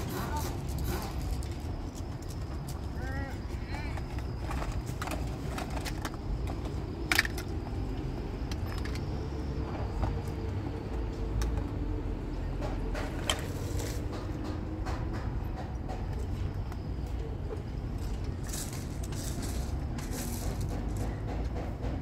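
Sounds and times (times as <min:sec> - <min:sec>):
plastic toys clattering: 0:03.9 - 0:09.2, 0:18.0 - 0:21.1.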